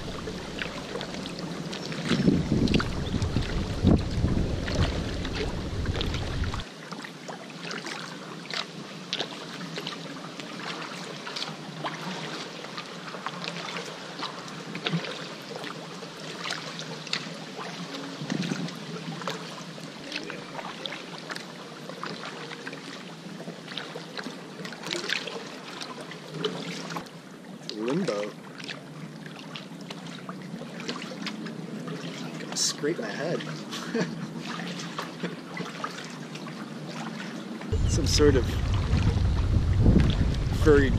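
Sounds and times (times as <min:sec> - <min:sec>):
wind rumble on microphone: 0:00.0 - 0:06.7, 0:37.7 - 0:40.9
paddle splashing water: 0:00.0 - 0:40.9.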